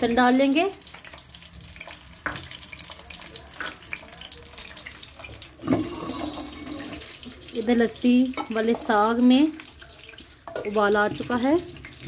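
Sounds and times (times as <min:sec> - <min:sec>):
garlic sizzling in a pan: 0:00.0 - 0:12.0
clay pot lid scraping: 0:05.6 - 0:07.1.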